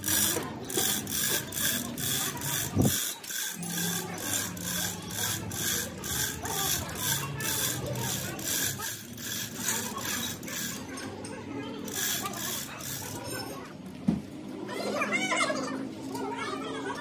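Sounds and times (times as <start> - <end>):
chain hoist clicking and rasping: 0.0 - 13.6.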